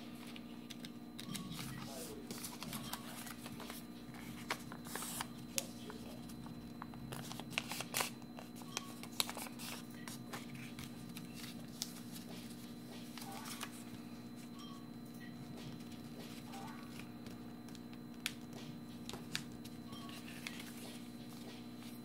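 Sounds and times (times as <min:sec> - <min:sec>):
steady low hum: 0:00.0 - 0:22.0
paper being folded and creased: 0:00.2 - 0:05.3, 0:07.1 - 0:12.2, 0:13.0 - 0:13.9, 0:19.1 - 0:21.1.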